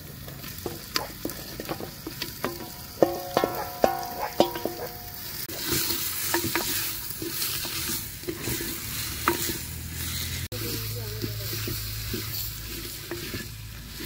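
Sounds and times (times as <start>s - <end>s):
meat sizzling in a pot: 0.0s - 14.0s
wooden spoon tapping metal bowl: 0.6s - 5.3s
spoon scraping and knocking: 0.6s - 9.7s, 11.5s - 13.5s
bowl ringing: 2.7s - 5.4s.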